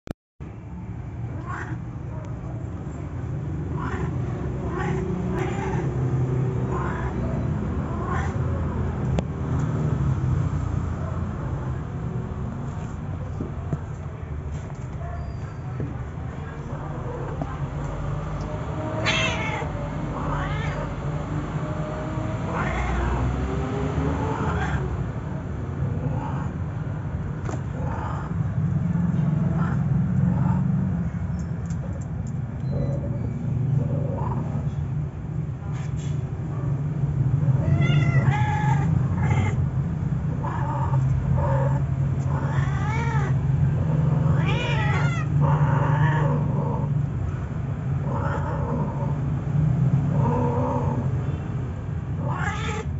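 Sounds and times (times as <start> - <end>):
cats yowling: 1.3 - 1.9, 3.6 - 8.8, 16.6 - 23.4, 24.1 - 25.0, 25.8 - 26.8, 27.6 - 28.6, 29.4 - 30.7, 33.8 - 34.7, 37.4 - 39.7, 40.3 - 47.0, 48.0 - 49.2, 50.0 - 51.2, 52.1 - 52.9.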